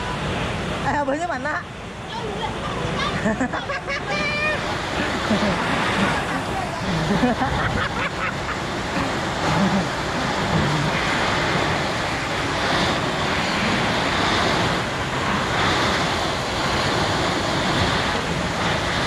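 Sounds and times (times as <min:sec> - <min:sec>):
fire hose water jet hissing: 0:04.2 - 0:19.0.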